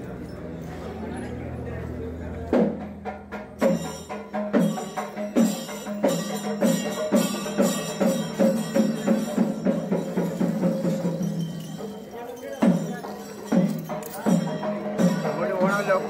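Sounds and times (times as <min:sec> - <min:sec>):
drums struck in rhythm: 0:02.5 - 0:16.0.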